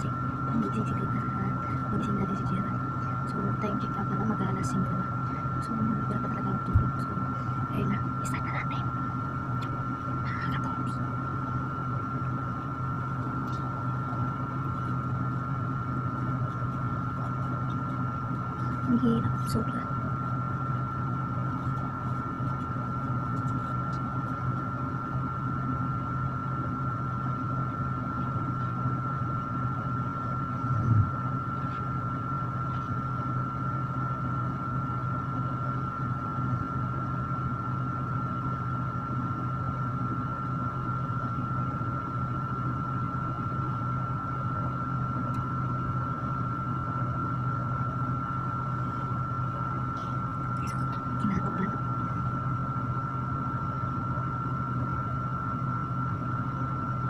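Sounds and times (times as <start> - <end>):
electric fan humming and whining: 0.0 - 57.0.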